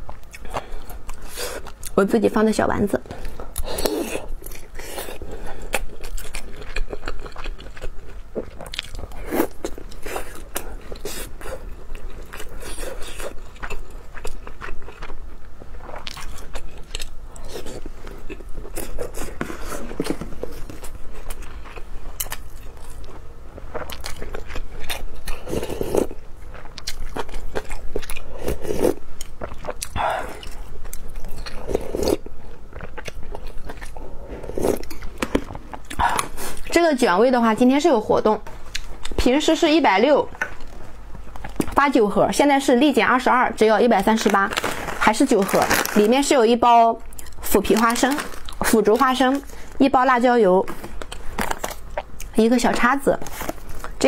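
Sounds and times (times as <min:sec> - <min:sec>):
wet chewing: 0:03.1 - 0:36.8.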